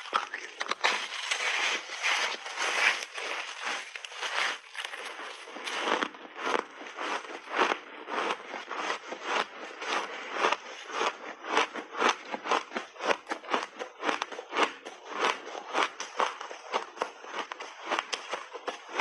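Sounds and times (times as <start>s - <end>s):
ice being chewed crunching: 0.0s - 19.0s.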